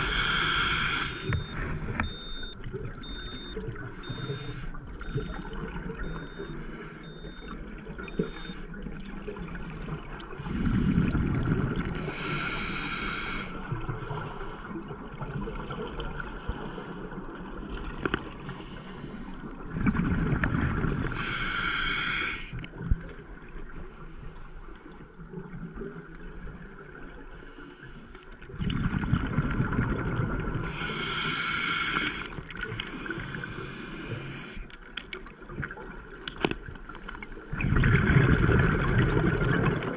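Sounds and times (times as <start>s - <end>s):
diver breathing through regulator: 0.0s - 5.4s, 6.2s - 8.6s, 10.4s - 11.2s, 12.0s - 14.7s, 21.1s - 22.6s, 30.6s - 34.7s.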